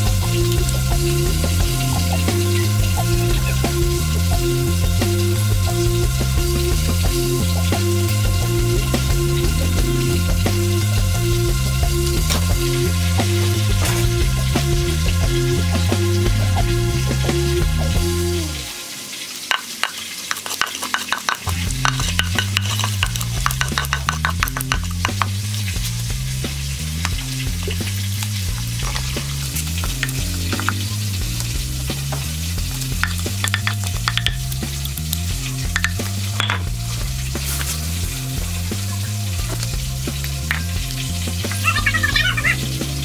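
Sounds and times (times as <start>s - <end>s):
pestle pounding in wooden mortar: 19.6s - 25.3s, 33.0s - 34.6s.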